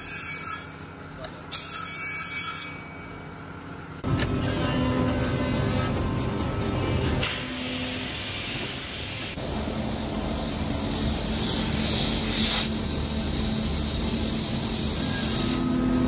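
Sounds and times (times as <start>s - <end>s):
sanding machine drone and hiss: 4.0s - 16.0s.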